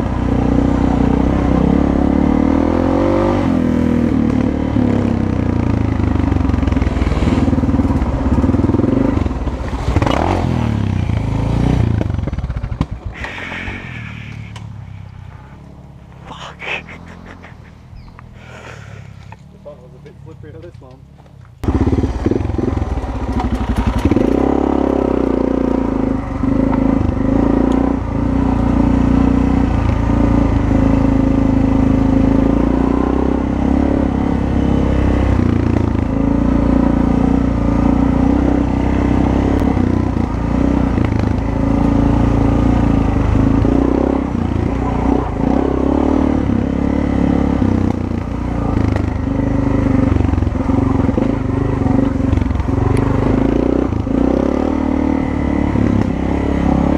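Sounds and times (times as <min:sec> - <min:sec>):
motorcycle engine revving: 0:00.0 - 0:56.9
clatter and scraping over rough ground: 0:06.5 - 0:13.4, 0:19.0 - 0:25.1.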